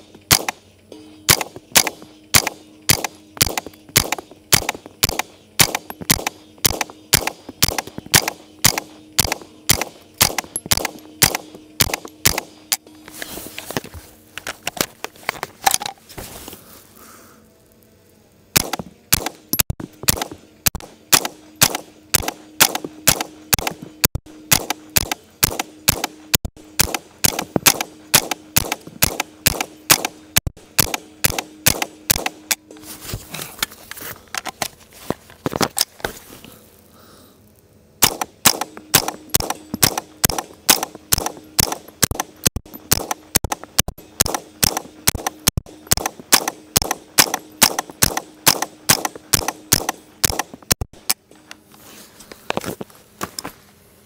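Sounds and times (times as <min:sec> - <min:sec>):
rifle firing rapidly: 0:00.3 - 0:00.6, 0:01.3 - 0:12.6, 0:18.6 - 0:19.4, 0:20.0 - 0:23.8, 0:24.5 - 0:32.5, 0:38.0 - 0:50.5.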